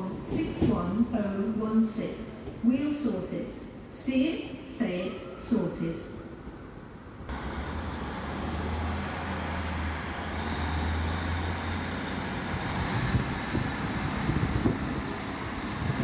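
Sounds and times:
diesel train engine drone: 6.3 - 16.0.

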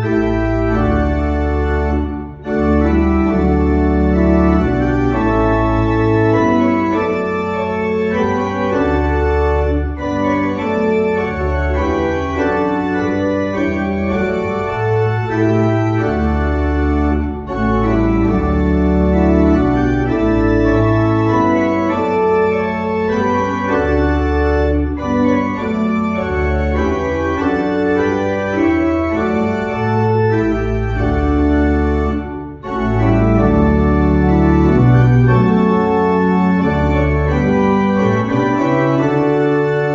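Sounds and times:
organ pedal bass: 0.0 - 39.9
pipe organ chords: 0.0 - 39.9.

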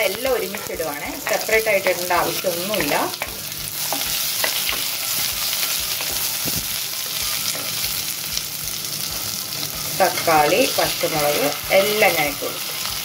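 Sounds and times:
onions sizzling in oil: 0.0 - 13.0.

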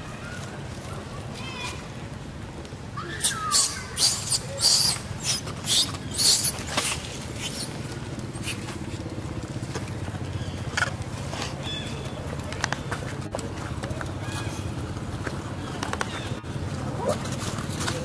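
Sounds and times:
monkeys hissing: 3.2 - 9.0.

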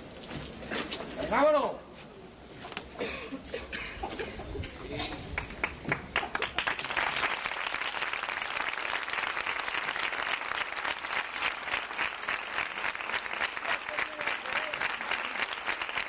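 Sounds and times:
crowd applauding: 5.2 - 16.0.

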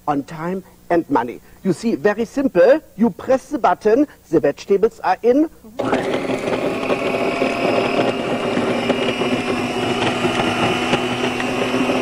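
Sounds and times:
food processor motor running: 5.8 - 12.0.

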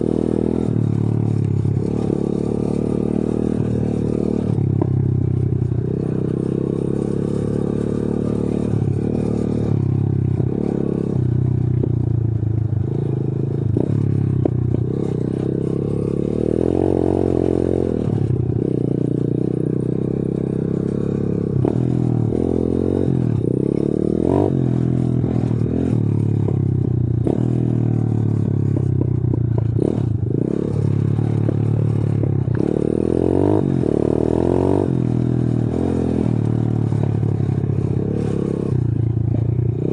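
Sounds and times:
motorbike engine revving: 0.0 - 39.9
bike knocks and rattles: 3.3 - 6.6, 13.6 - 16.3, 25.1 - 33.1.

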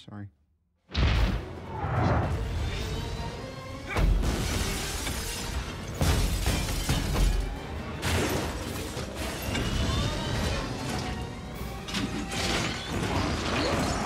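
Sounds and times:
orchestral score: 1.2 - 14.0
glass shattering: 4.2 - 10.0
crumbling concrete and debris: 4.2 - 14.0.

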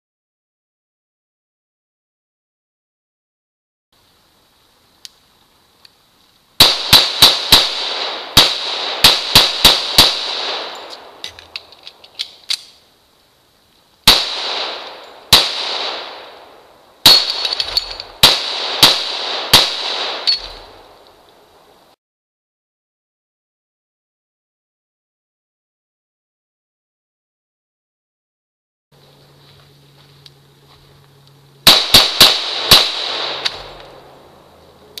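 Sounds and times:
pistol shots: 6.6 - 11.4, 14.1 - 21.0, 31.6 - 34.2
magazine change clicks: 10.5 - 12.8.

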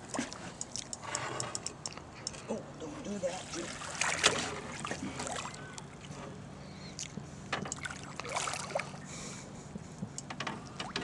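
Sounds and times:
low steady hum: 0.0 - 11.0
fish thrashing and splashing water: 3.3 - 6.2, 7.8 - 9.0.

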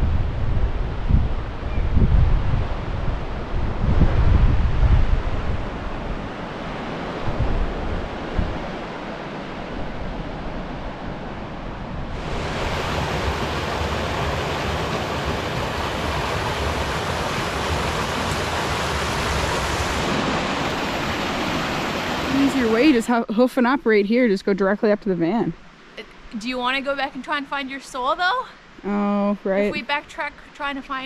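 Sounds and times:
wind buffeting microphone: 0.0 - 24.4
distant surf: 0.0 - 28.8
creek rushing over rocks: 12.1 - 23.2.

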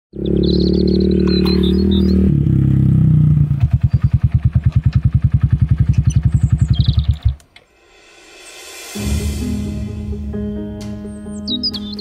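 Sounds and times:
small motorcycle engine puttering: 0.2 - 7.6.

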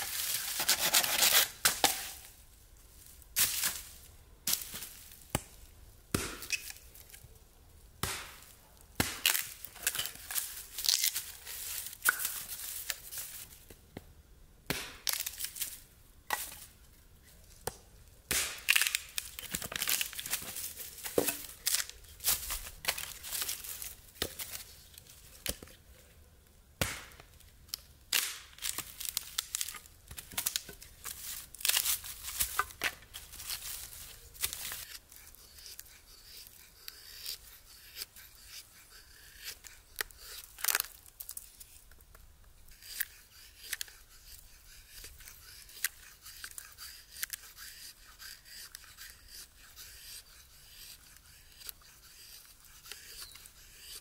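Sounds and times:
hatchet chopping wood: 6.1 - 6.5, 8.0 - 8.4, 9.0 - 9.4, 14.7 - 15.2, 17.6 - 18.7, 26.8 - 27.2.

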